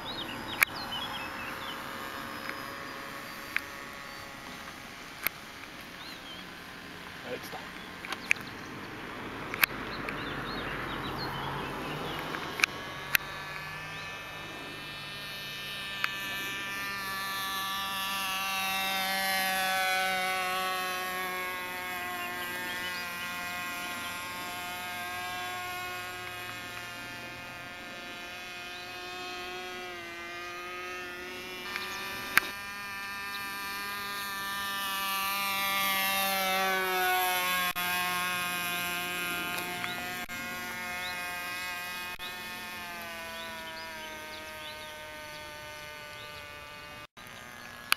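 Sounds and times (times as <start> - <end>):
model plane propeller buzzing: 0.0 - 47.9
sharp clicks: 0.5 - 0.9, 2.4 - 6.2, 7.6 - 8.6, 9.4 - 10.2, 11.9 - 14.1, 31.6 - 33.2, 39.5 - 40.3.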